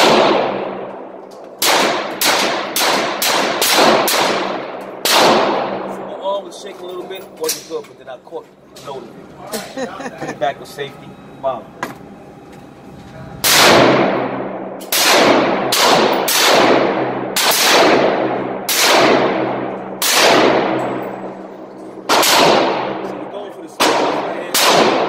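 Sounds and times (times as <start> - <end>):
gunshots echoing indoors: 0.0 - 6.2, 13.4 - 25.0.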